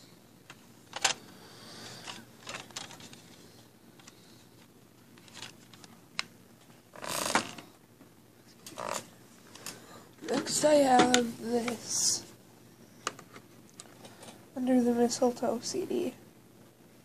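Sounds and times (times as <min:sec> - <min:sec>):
phone handling rustling scrape: 0:02.0 - 0:03.4.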